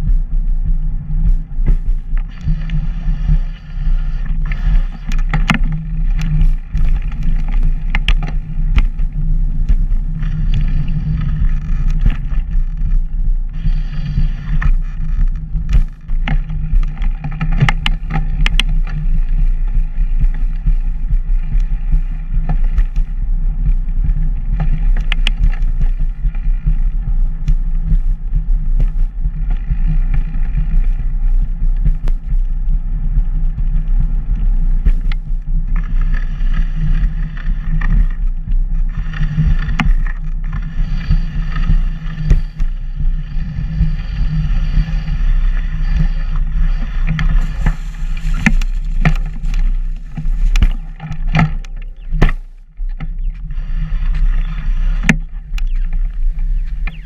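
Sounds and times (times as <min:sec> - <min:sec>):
wind rumble: 0:00.0 - 0:57.0
camera motion noise: 0:01.6 - 0:23.1, 0:34.8 - 0:57.0.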